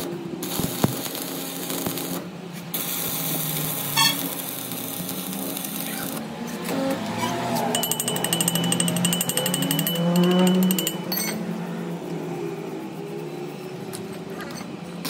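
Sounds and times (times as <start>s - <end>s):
arc welding crackling sizzle: 0.0s - 6.7s.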